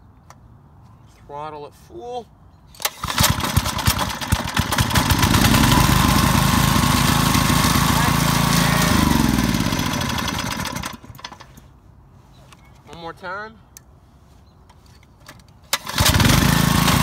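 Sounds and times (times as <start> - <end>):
small engine running: 3.0 - 11.1, 15.8 - 17.0.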